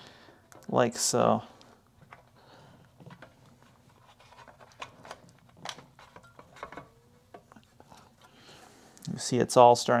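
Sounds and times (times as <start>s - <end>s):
clicks and knocks of parts handled: 1.6s - 8.3s.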